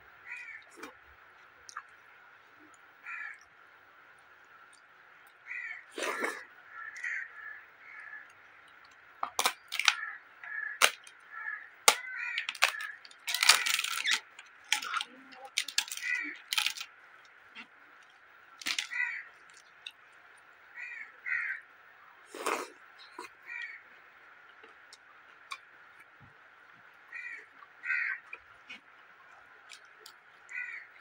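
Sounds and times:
papad crunching: 11.9s - 16.8s, 18.6s - 19.0s.

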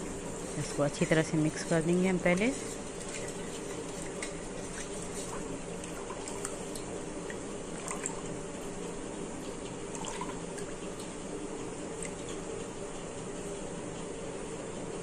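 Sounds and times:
water sloshing and dripping: 3.0s - 11.2s, 11.9s - 12.4s.

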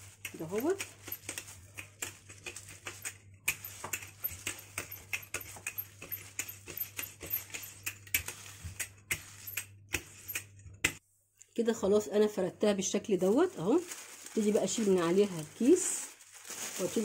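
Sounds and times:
rolling pin crinkling plastic: 0.0s - 9.4s, 13.1s - 17.0s.

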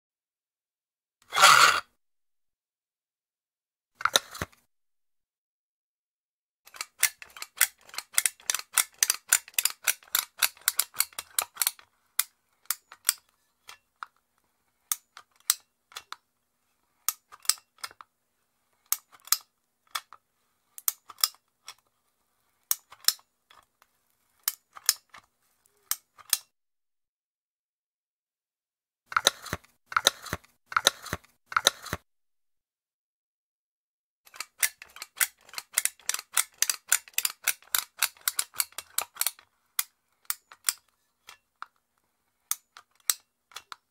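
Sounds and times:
caulking gun metallic clicks: 34.3s - 39.4s.

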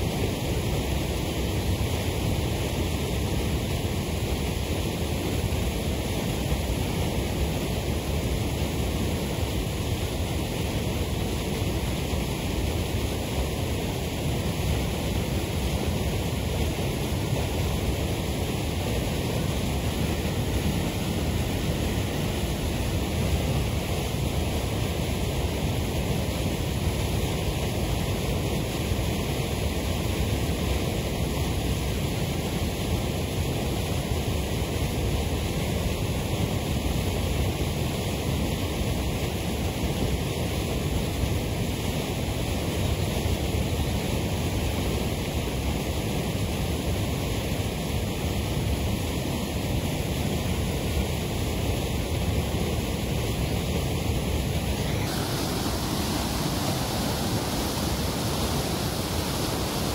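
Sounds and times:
waterfall rushing: 0.0s - 30.0s, 48.4s - 59.9s.

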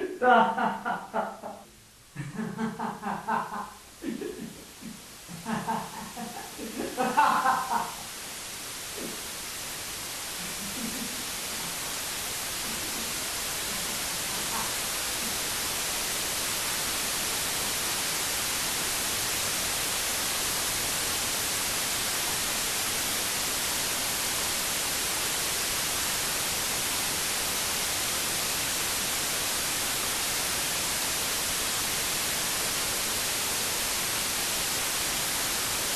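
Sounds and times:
white noise hiss: 0.0s - 35.9s.

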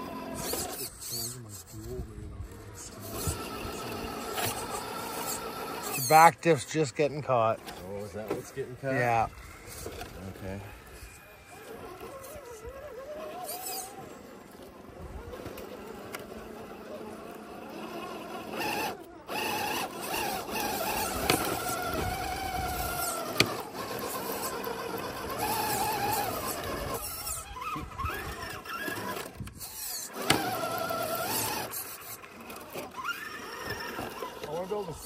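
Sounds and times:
electric motors whining: 0.0s - 35.0s.

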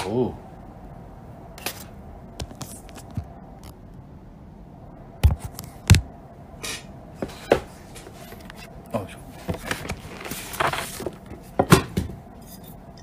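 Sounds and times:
paper food containers rustling: 1.6s - 3.4s, 9.2s - 12.0s.

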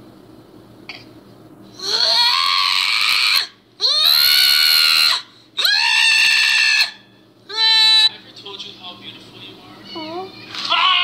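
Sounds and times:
cat yowling: 1.8s - 8.1s, 10.7s - 11.0s.

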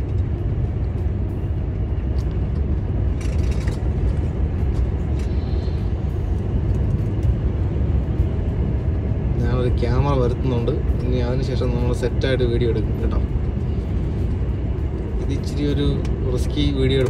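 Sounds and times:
road noise: 0.0s - 17.0s
truck engine rumble: 0.0s - 17.0s.

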